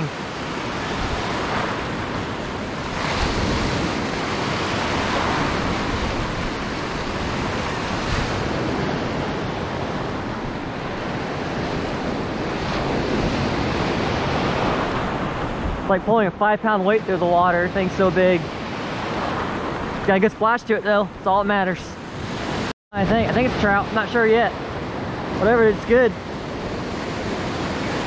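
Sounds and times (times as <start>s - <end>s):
wind buffeting microphone: 0.0s - 16.3s.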